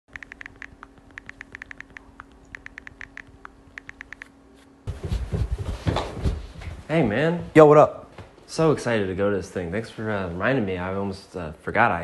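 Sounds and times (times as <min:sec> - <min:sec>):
phone keyboard clicks: 0:00.1 - 0:04.3
rustling and shuffling: 0:04.5 - 0:09.0.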